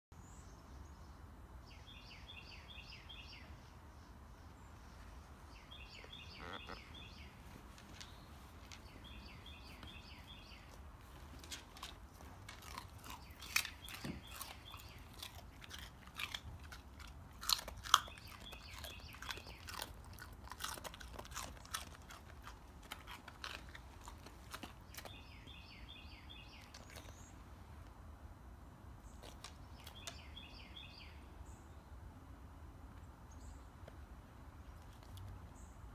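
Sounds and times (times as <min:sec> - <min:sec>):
bird chirping: 0:00.2 - 0:10.8, 0:17.8 - 0:20.2, 0:24.5 - 0:27.4, 0:29.0 - 0:32.0
dog crunching a carrot: 0:05.8 - 0:27.4, 0:29.0 - 0:30.6, 0:33.8 - 0:35.6.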